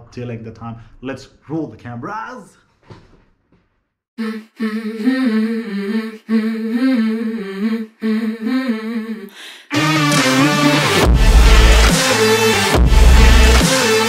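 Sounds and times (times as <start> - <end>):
person humming a melody: 4.2 - 9.8
backing music with a beat: 9.7 - 14.0.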